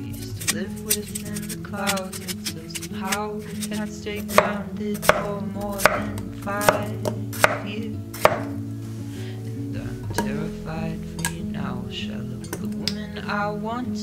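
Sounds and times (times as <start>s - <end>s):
knife chopping on wooden board: 0.4s - 8.6s.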